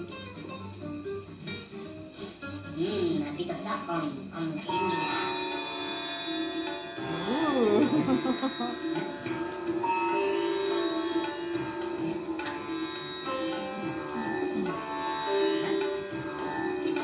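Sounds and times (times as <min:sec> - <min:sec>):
plucked string melody: 0:04.7 - 0:17.0.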